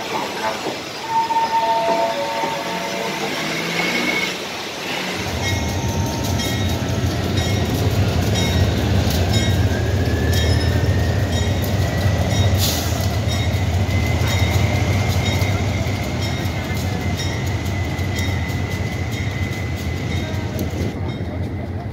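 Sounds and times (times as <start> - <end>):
locomotive bell ringing: 5.2 - 21.9.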